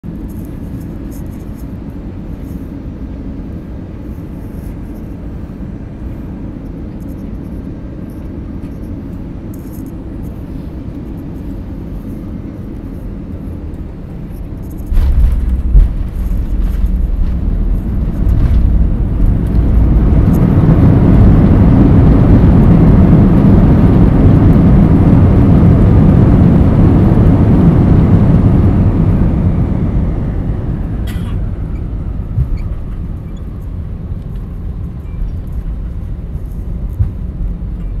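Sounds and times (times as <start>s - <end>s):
airliner engine and airflow noise: 0.0s - 38.0s
touchdown rumble and thumps: 8.0s - 38.0s
reverse thrust roar: 14.7s - 34.8s.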